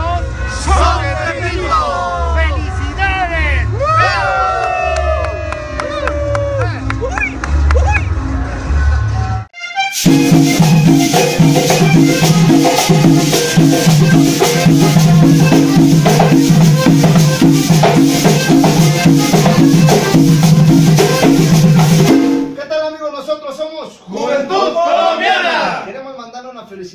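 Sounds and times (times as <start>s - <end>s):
button accordion music: 9.6s - 22.4s.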